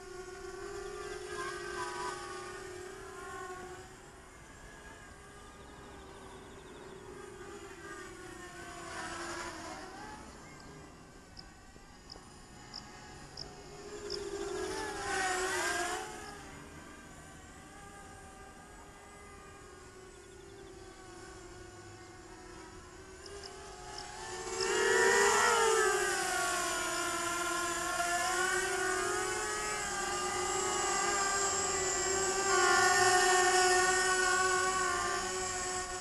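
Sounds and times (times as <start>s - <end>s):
drone motors and propellers whining: 0.0s - 36.0s.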